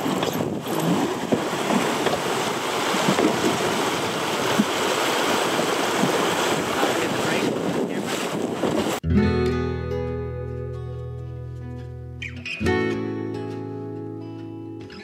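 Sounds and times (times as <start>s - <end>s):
river water rushing: 0.0s - 9.0s.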